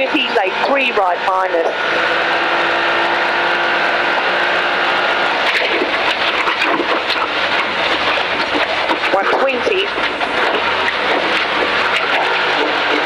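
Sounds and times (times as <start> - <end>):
car engine from inside cabin: 0.0 - 8.2, 9.1 - 13.0
road knocks and rattles: 5.4 - 13.0.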